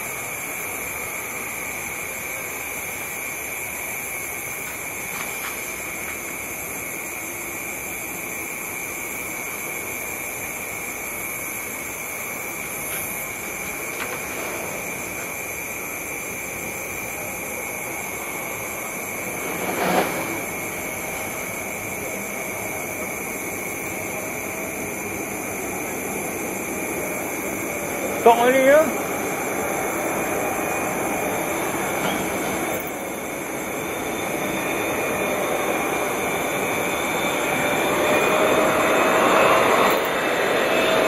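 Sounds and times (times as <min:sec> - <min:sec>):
distant jet rumble: 0:11.4 - 0:41.0
jet rushing: 0:13.2 - 0:41.0.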